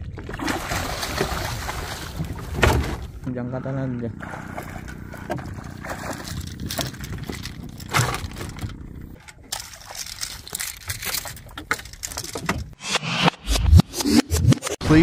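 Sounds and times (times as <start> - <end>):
fish splashing and thrashing: 0.0 - 3.2, 4.1 - 12.8
low steady hum: 0.6 - 12.0
knocks and crackles: 4.8 - 12.8.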